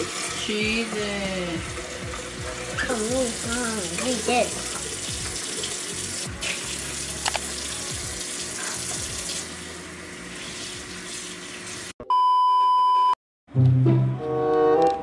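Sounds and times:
running water from tap: 0.0 - 11.9.

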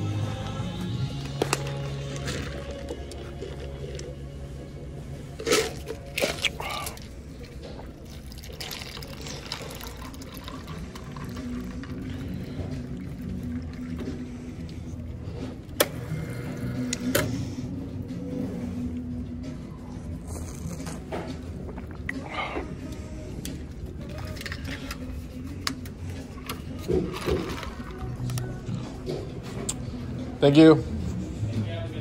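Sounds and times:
soda fountain dispensing: 5.4 - 14.4, 26.4 - 28.5
liquid pouring into paper cup: 5.4 - 15.1, 26.3 - 28.6.

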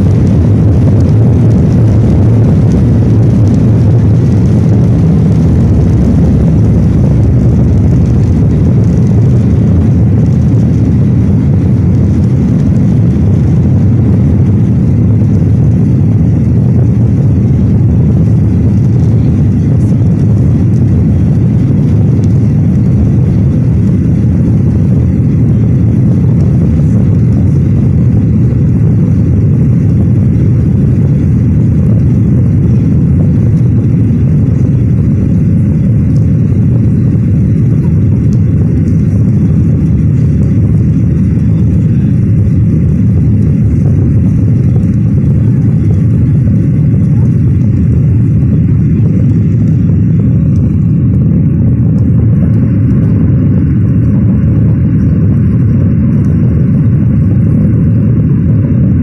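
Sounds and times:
jet engines roaring in cabin: 0.0 - 59.0.

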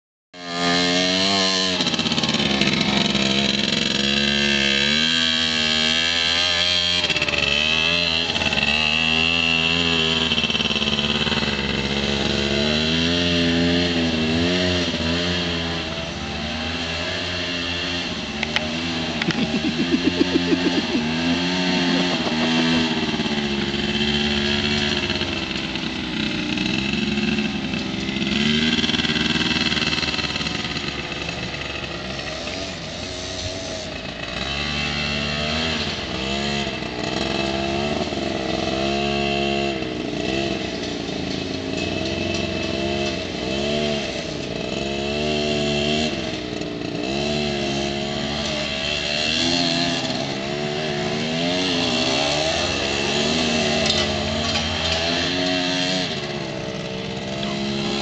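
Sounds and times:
quad engines revving: 0.4 - 58.0
rapid even engine pulses: 18.4 - 23.3.

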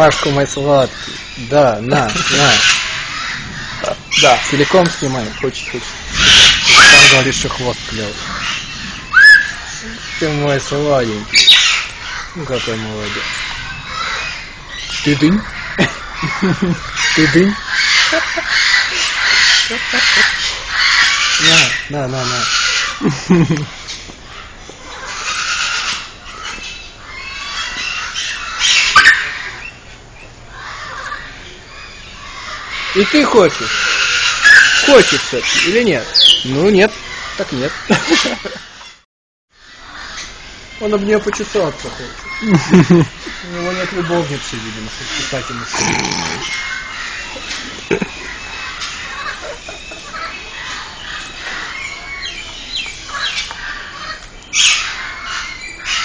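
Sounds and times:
parrot squawking: 0.0 - 10.3, 11.3 - 23.0, 24.9 - 29.6, 30.6 - 38.5, 43.1 - 56.0.

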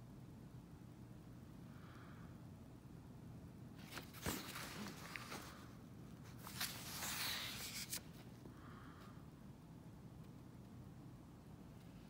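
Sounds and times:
paper pages rustling: 3.8 - 8.3.

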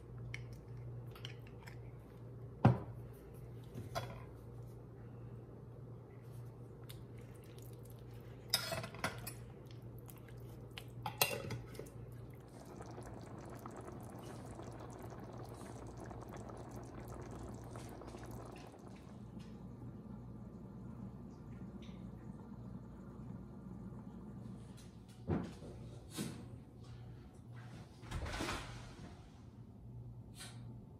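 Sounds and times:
sauce bubbling: 6.6 - 24.3
low hum: 9.2 - 25.2.

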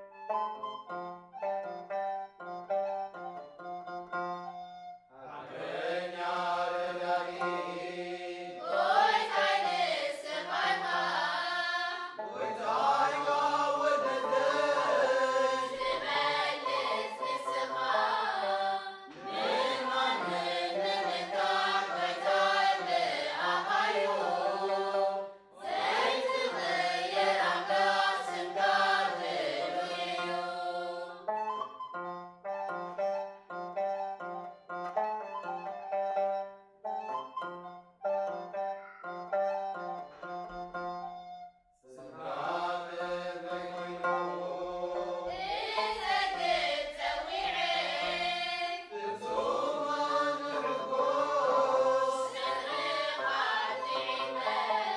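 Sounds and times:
choir singing a hymn: 5.3 - 31.3, 41.8 - 54.9.

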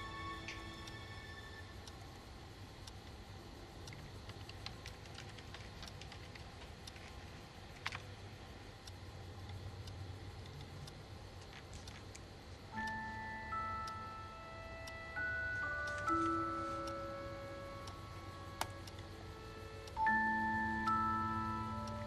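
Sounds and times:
soft bell-like music: 0.0 - 1.9, 12.7 - 22.0
faint low hum: 0.0 - 22.0
small ticks: 0.0 - 22.0.

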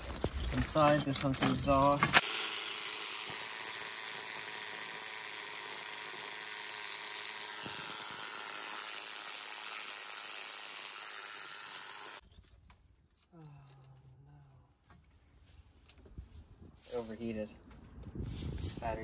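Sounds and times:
rotary hammer grinding masonry: 0.0 - 13.9.

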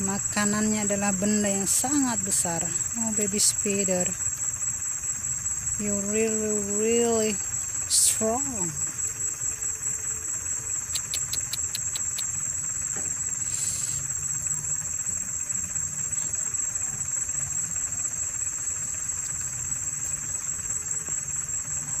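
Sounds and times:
insects droning: 0.0 - 22.0
chirping clicks: 10.7 - 12.4
brief hiss: 13.4 - 14.0.

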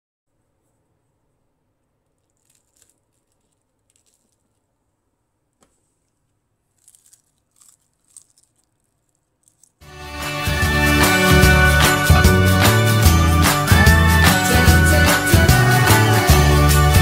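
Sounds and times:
faint crackles and crunches: 1.8 - 4.9, 5.5 - 9.9.

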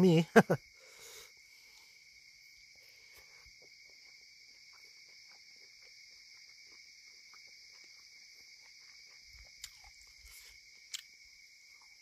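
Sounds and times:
crickets trilling: 0.0 - 12.0
person eating by hand: 4.8 - 12.0.

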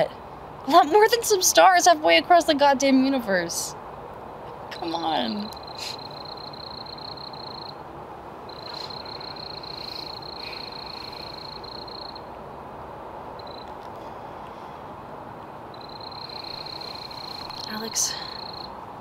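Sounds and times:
steady low hiss: 0.0 - 19.0
cricket trilling: 4.7 - 7.8, 8.4 - 12.4, 13.4 - 13.8, 15.7 - 18.8.

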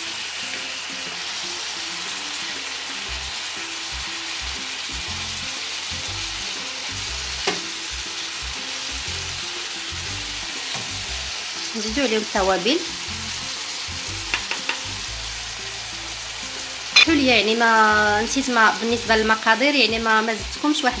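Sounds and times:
food sizzling in oil: 0.0 - 21.0.

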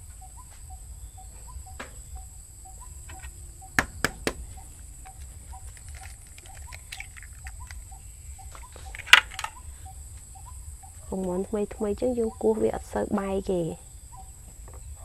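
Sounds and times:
eggshell clicks: 5.0 - 8.0.

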